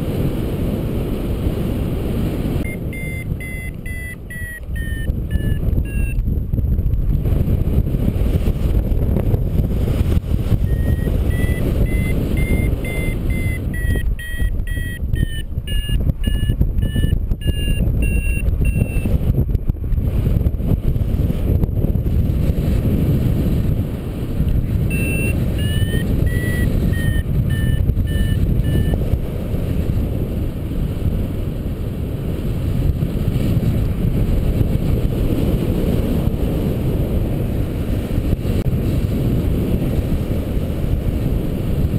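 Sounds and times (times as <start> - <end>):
wind buffeting microphone: 0.0 - 41.9
variometer beeping: 2.6 - 6.2, 10.6 - 19.2, 24.9 - 29.0.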